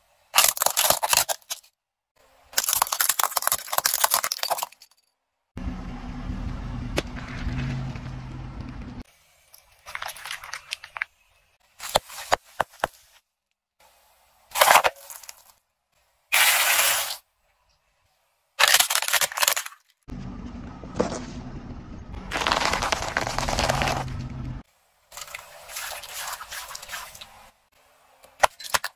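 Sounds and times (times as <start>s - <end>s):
low engine rumble: 5.6s - 9.1s, 20.1s - 24.6s
tyre crushing objects: 22.3s - 24.2s.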